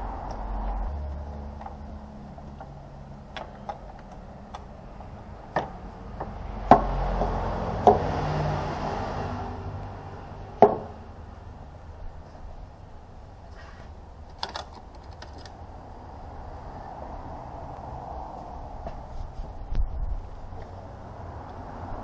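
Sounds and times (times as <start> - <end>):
wiring rustling and scraping: 13.5 - 15.6.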